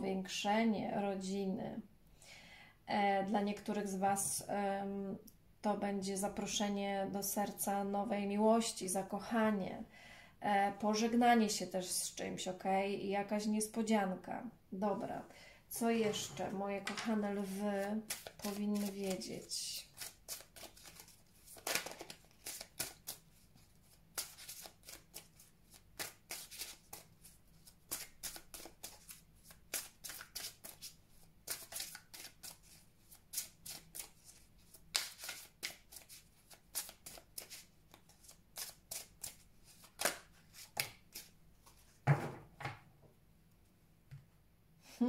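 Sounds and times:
cards shuffling: 16.9 - 19.3, 19.9 - 23.2, 23.8 - 27.1, 27.9 - 41.8.

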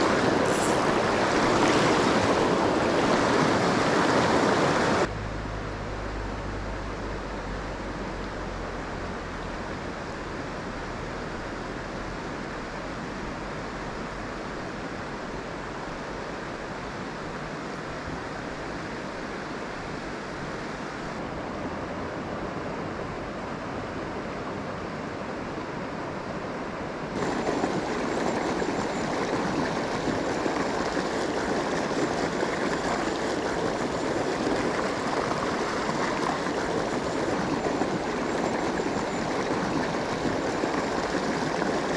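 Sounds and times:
stream rushing over stones: 0.0 - 5.1, 27.2 - 41.9.

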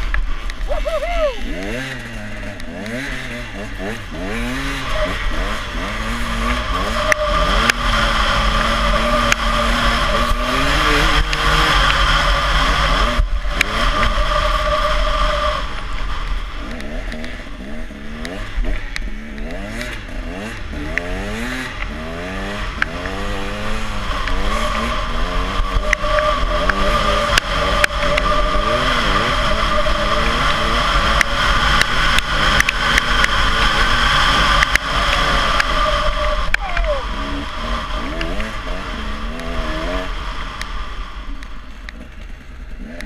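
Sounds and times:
snowmobile engine running: 0.0 - 43.0
high whine: 22.7 - 41.8.

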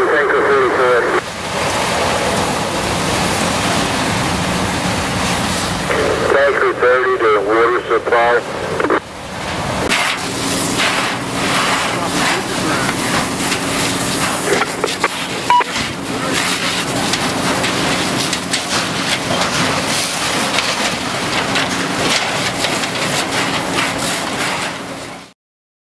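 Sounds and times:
fire engine humming: 0.0 - 25.3
fire hose stream hissing: 0.0 - 25.3
short high beep: 15.5 - 15.8.

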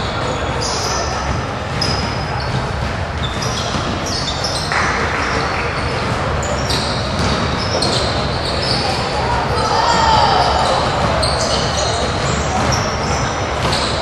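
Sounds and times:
echoing gym background noise: 0.0 - 14.0
sneakers squeaking on hardwood: 0.0 - 14.0
basketball bouncing on floor: 1.2 - 8.1
people calling out: 7.9 - 13.4.

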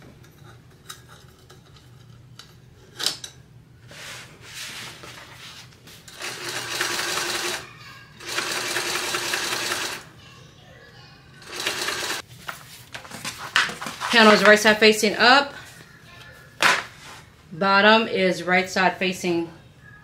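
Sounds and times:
sewing machine stitching: 6.1 - 10.1, 11.4 - 12.2.

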